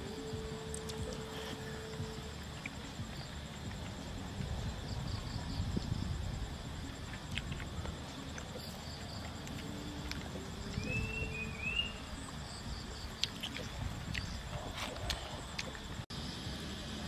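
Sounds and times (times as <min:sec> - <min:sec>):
insects trilling: 0:00.0 - 0:17.0
rising bird chirp: 0:10.6 - 0:12.2.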